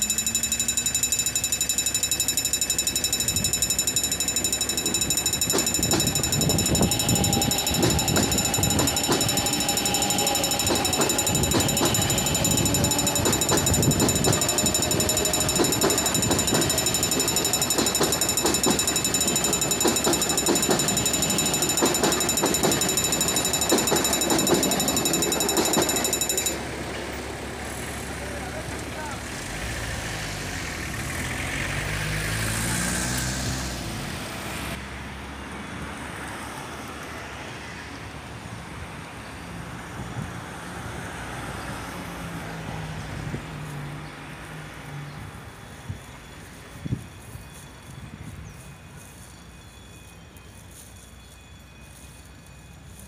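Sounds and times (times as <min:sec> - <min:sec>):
level crossing bell ringing: 0:00.0 - 0:26.6.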